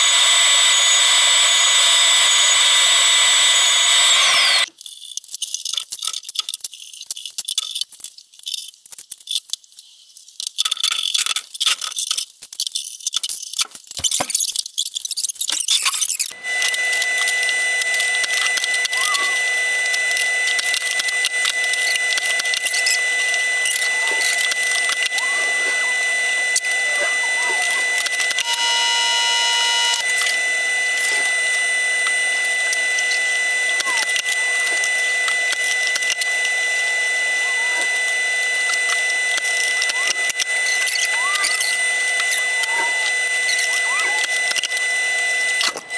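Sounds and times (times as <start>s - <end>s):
steady high tone: 18.3s - 19.9s, 21.7s - 35.8s, 39.6s - 44.4s
brief buzzing tone: 23.6s - 30.3s.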